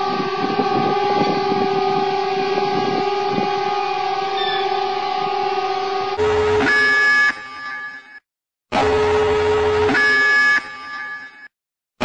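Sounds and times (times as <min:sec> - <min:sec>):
alert tone chord: 0:00.0 - 0:06.9.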